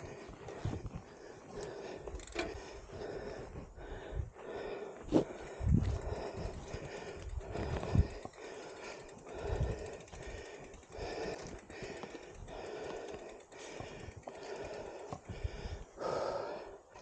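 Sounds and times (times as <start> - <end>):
footsteps on rough ground: 0.0 - 8.4
heavy rhythmic breathing: 0.0 - 17.0.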